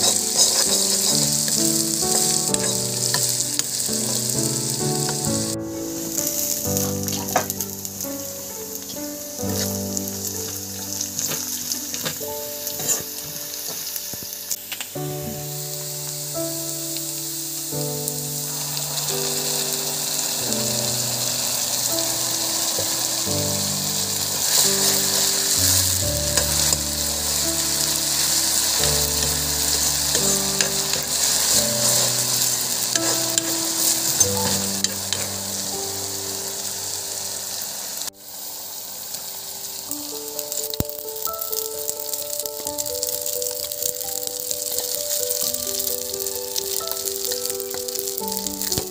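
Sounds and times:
metal spatula scraping wok: 0:00.0 - 0:07.8, 0:08.5 - 0:13.3, 0:18.5 - 0:35.9
soft background music: 0:00.0 - 0:38.6, 0:39.2 - 0:48.9
vegetables sizzling in oil: 0:00.0 - 0:48.9.

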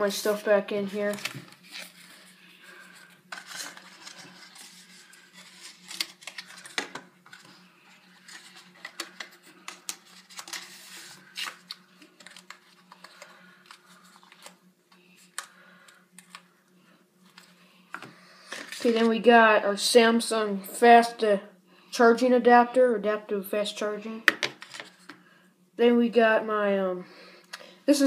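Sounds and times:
paper and cardboard rustling: 0:00.0 - 0:14.6.

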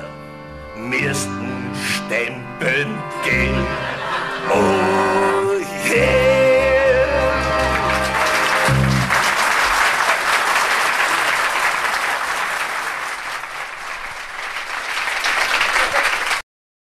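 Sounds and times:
audience applauding: 0:07.1 - 0:16.4.

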